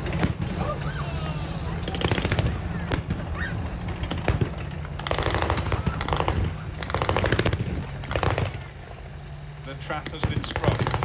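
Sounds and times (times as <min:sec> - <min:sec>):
vehicle engines running: 0:00.0 - 0:11.0
machine gun firing bursts: 0:05.0 - 0:08.6, 0:10.2 - 0:11.0.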